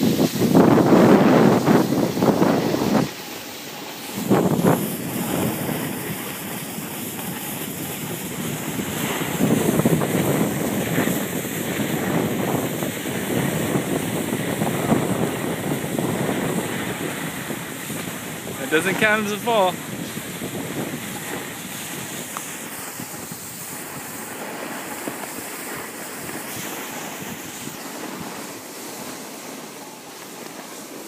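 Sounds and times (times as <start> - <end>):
skis scraping snow: 0.0 - 31.0
wind on microphone: 0.0 - 31.0.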